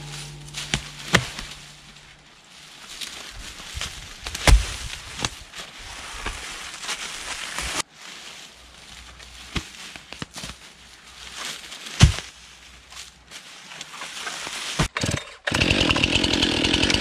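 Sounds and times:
low steady hum: 0.0s - 4.0s.

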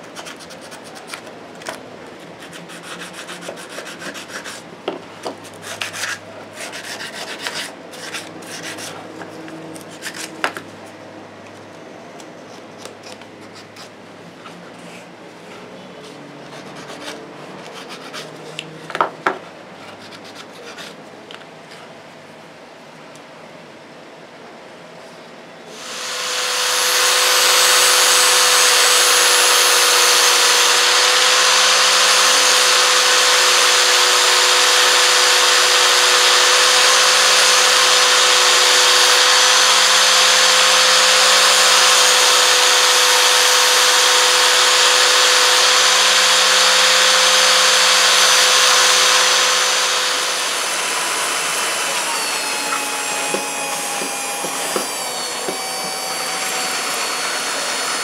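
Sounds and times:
cordless drill sanding drum: 25.7s - 58.0s
angle grinder sanding steel: 25.8s - 58.0s.

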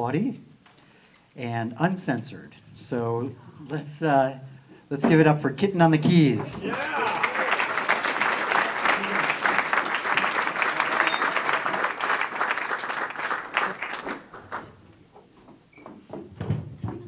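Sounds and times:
audience applauding: 6.4s - 14.8s.

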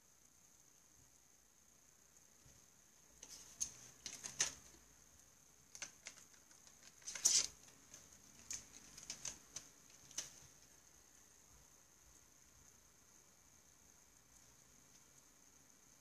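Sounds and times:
pencil and plastic case clicking: 3.2s - 4.8s.

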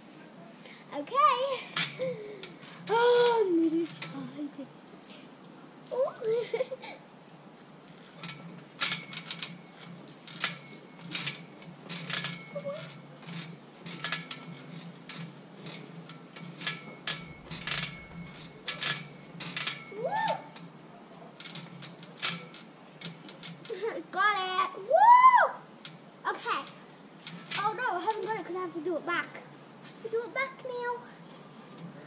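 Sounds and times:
metal monkey bars clanking: 1.6s - 4.6s, 8.0s - 23.9s, 25.8s - 28.6s.

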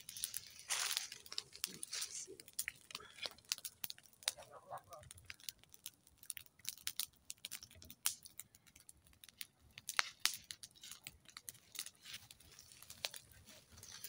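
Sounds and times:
footsteps through dry leaves: 0.0s - 2.5s
dry twigs fire crackling: 0.0s - 14.0s.

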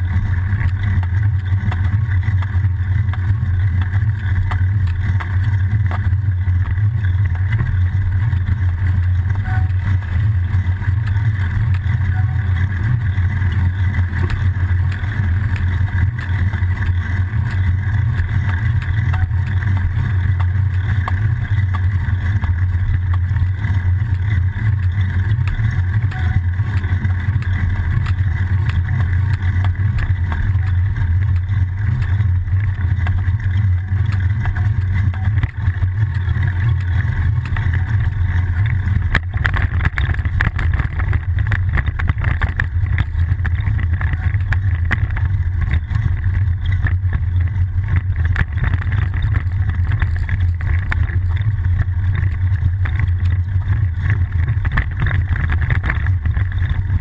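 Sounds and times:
bicycle rolling on road: 0.0s - 57.0s
faint ticks and rattles: 0.0s - 57.0s.

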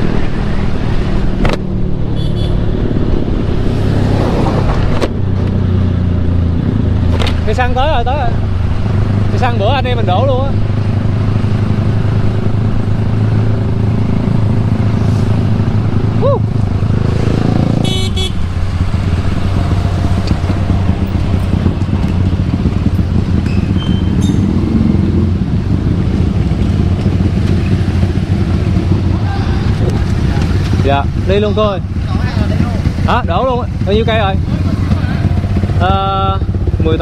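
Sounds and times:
motorcycle engine running: 0.0s - 37.0s
road and wind noise: 0.0s - 37.0s.

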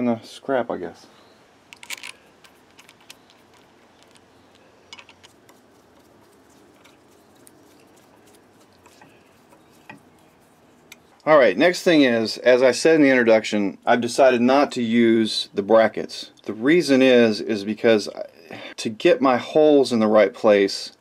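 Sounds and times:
faint clicks and metal taps: 1.7s - 5.6s.

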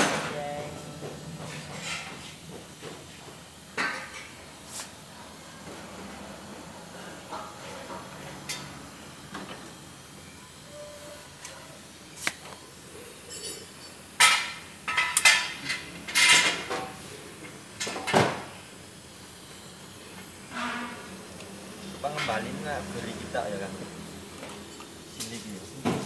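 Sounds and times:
metal parts clanking and scraping: 1.5s - 2.2s.

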